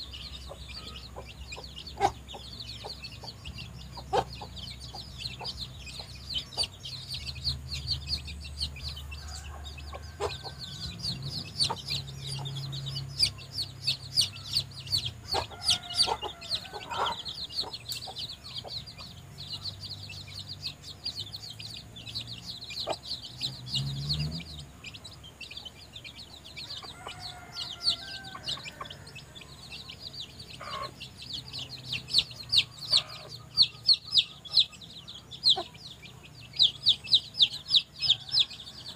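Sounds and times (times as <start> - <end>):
chicks peeping: 0.0 - 38.9
hen clucking softly: 30.6 - 31.0.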